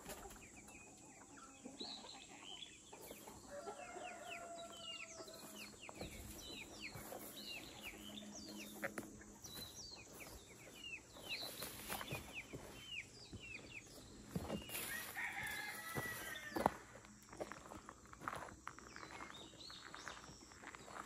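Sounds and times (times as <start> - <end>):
chickens clucking: 0.0 - 21.0
rooster crowing: 3.5 - 5.4, 14.8 - 16.7.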